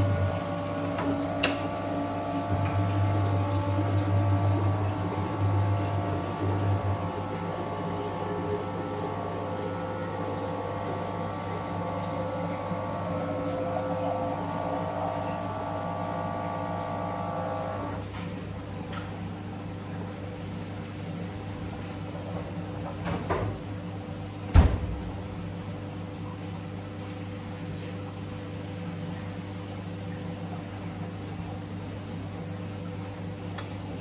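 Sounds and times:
steady hum: 0:00.0 - 0:20.0.

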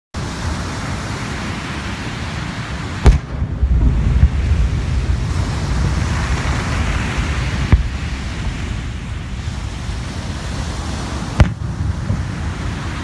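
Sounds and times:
steady rushing noise: 0:00.2 - 0:13.0
firework shell bang: 0:03.0 - 0:04.4, 0:11.4 - 0:11.7
low rumble: 0:03.1 - 0:12.8.

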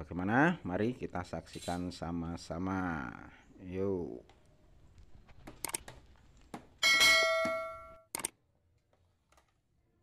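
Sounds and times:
bright bell ding: 0:06.8 - 0:08.0.

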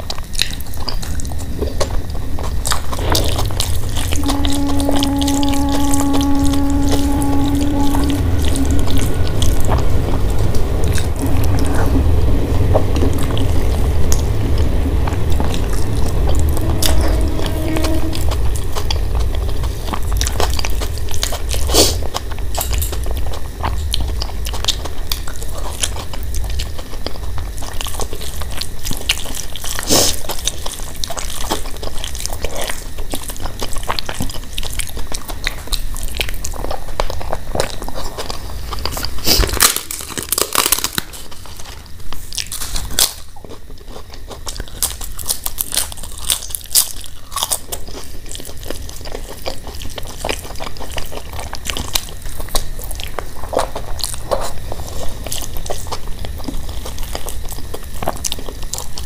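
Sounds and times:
chewing: 0:00.0 - 0:59.0
crisp wafer cracking and crunching: 0:36.0 - 0:54.6.

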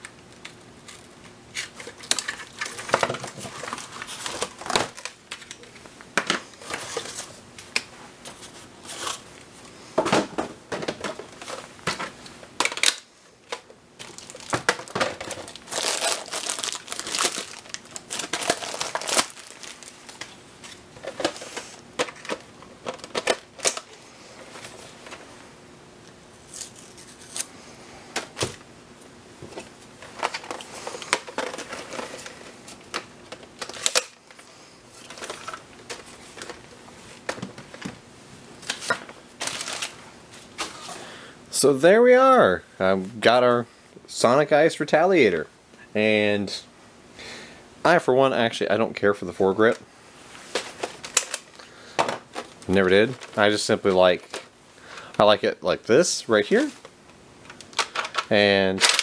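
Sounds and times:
cardboard and plastic wrap crinkling: 0:01.6 - 0:05.7, 0:12.6 - 0:25.3, 0:38.6 - 0:40.9, 0:52.2 - 0:54.5, 0:56.3 - 0:56.9.

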